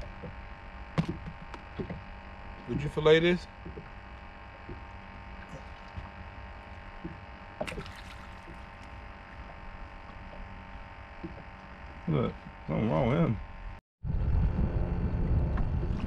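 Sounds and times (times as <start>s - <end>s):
hum of held tones: 0.0s - 16.0s
low rumble: 13.3s - 16.0s.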